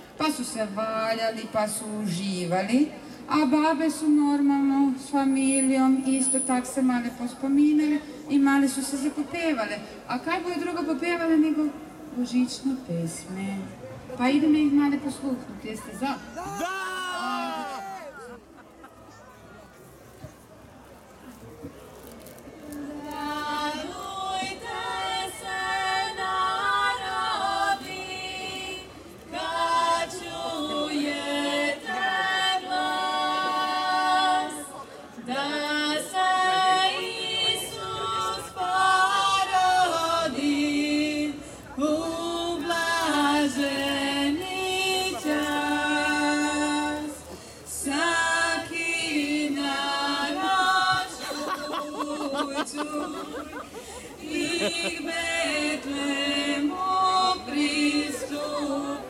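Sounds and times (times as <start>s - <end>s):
group singing a carol a cappella: 22.8s - 59.0s.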